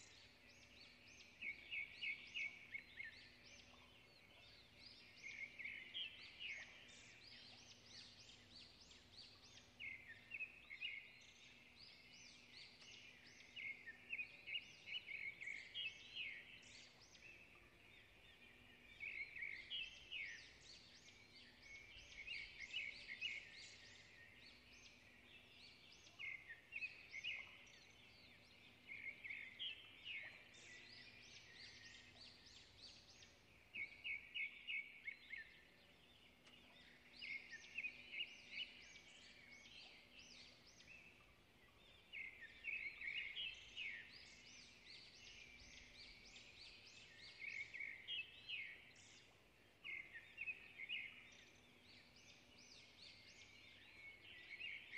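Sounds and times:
faint bird chirping: 0.0s - 54.9s.

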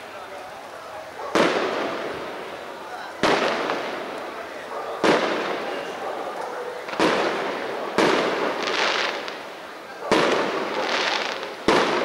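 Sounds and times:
firework hiss: 6.8s - 12.0s.

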